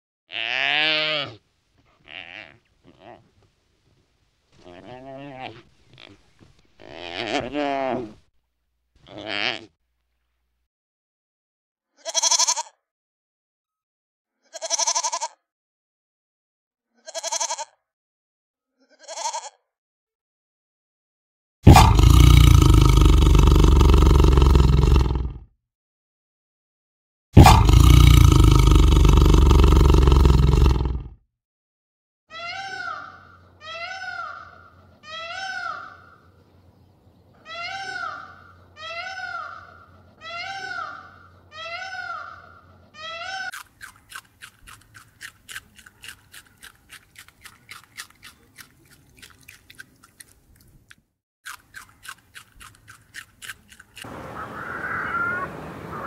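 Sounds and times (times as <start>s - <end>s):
animal bleating: 0.3s - 3.3s, 4.6s - 8.2s, 9.0s - 9.7s, 12.0s - 12.8s, 14.4s - 15.4s, 17.0s - 17.8s, 18.8s - 19.6s, 32.3s - 36.2s, 37.4s - 43.6s
animal calling: 4.6s - 8.2s, 21.7s - 24.4s, 32.3s - 36.3s, 37.4s - 50.4s, 52.0s - 56.0s.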